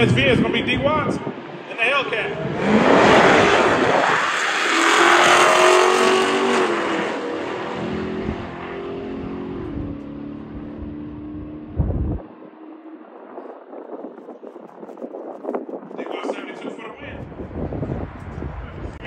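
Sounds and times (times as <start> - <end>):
cars accelerating at full throttle: 0.0 - 14.2.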